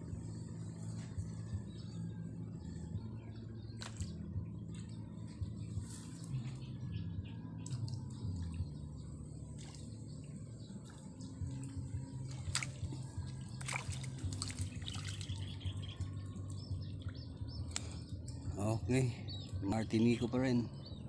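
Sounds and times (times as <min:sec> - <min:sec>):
low steady rumble: 0:00.0 - 0:21.0
fish splashing: 0:10.8 - 0:15.6.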